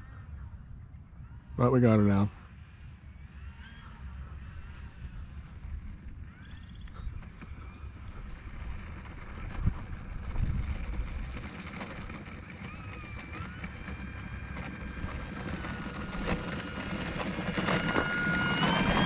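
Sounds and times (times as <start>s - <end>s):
wind buffeting microphone: 2.7s - 19.0s
model plane motor whining: 2.8s - 19.0s.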